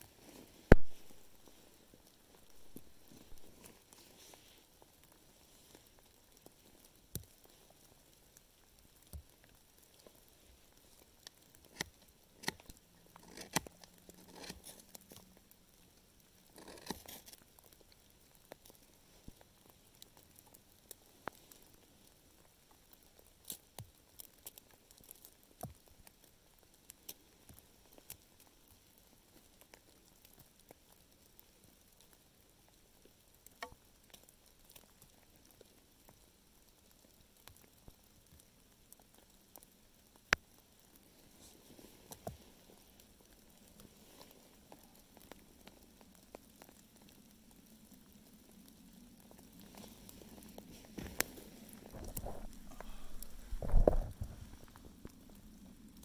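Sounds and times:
knife scraping dry wood: 0:13.2 - 0:14.9, 0:16.5 - 0:17.3.

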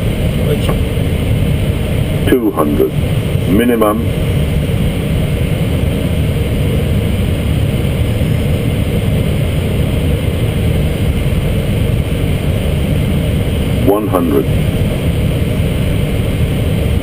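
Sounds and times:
aircraft cockpit rumble and hiss: 0:00.0 - 0:17.0.

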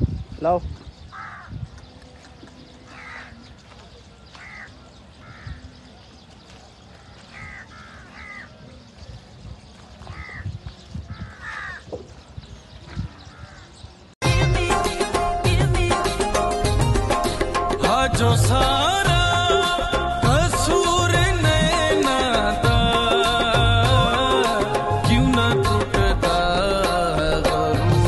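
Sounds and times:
outdoor background noise: 0:00.0 - 0:14.2
crows cawing: 0:01.1 - 0:01.6, 0:02.9 - 0:03.4, 0:04.3 - 0:05.7, 0:07.0 - 0:08.5, 0:10.1 - 0:10.5, 0:11.1 - 0:12.0, 0:13.1 - 0:13.7
loud music: 0:14.2 - 0:28.0.

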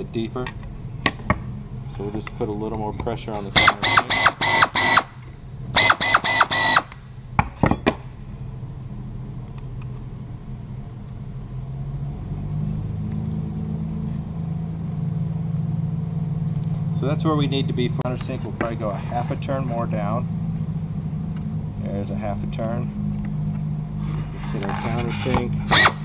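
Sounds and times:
low steady hum: 0:00.0 - 0:26.0
drill whining in bursts: 0:03.6 - 0:05.1, 0:05.8 - 0:07.0, 0:25.6 - 0:26.0.

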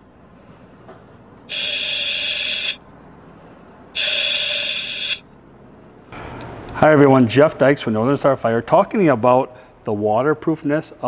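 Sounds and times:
electronic alarm beeps: 0:01.5 - 0:02.8, 0:04.0 - 0:05.2.

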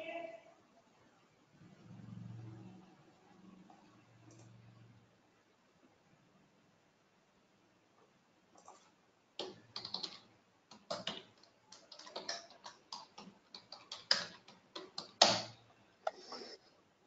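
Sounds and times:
computer keyboard typing: 0:08.6 - 0:16.2.

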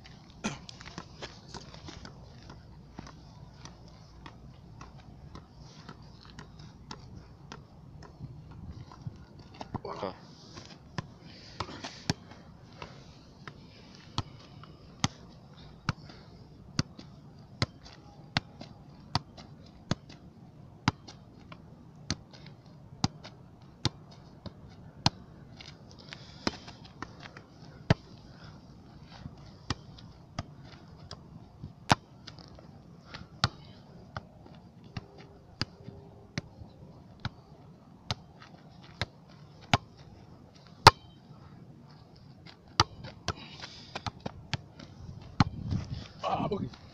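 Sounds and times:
football being kicked thuds: 0:42.7 - 0:46.8.

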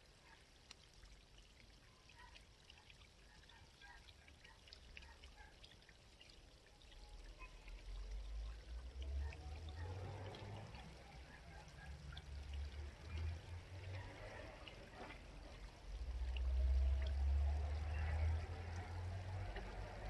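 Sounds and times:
brook babbling: 0:00.0 - 0:20.0.

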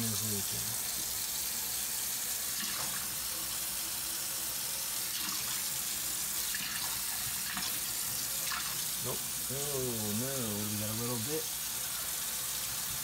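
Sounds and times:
water splashing into metal sink: 0:02.5 - 0:03.2, 0:05.1 - 0:09.4.

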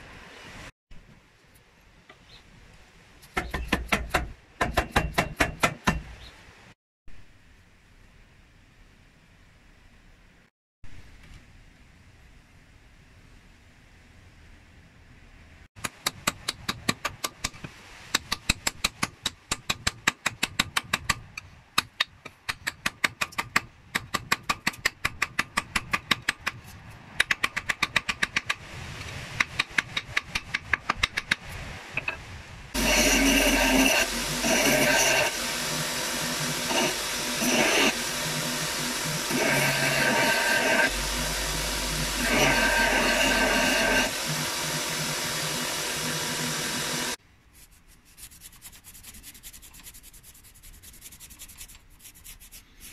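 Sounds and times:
hammer striking metal wedge: 0:03.3 - 0:06.1
belt sander motor running: 0:32.8 - 0:47.2.

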